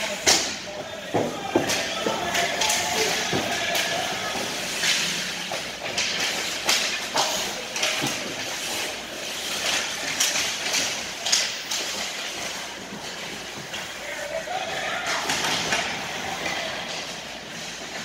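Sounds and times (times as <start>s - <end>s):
hockey sticks and puck clacking: 0.0s - 18.0s
skate blades scraping on ice: 0.1s - 18.0s.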